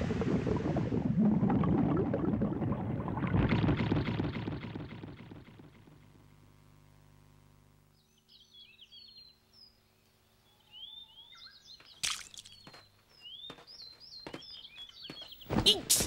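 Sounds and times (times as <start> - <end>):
low steady hum: 0.0 - 13.0
birds chirping: 8.0 - 16.0.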